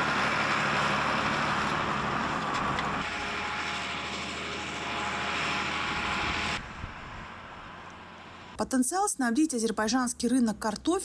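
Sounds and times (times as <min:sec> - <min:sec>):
machinery droning: 0:00.0 - 0:08.6.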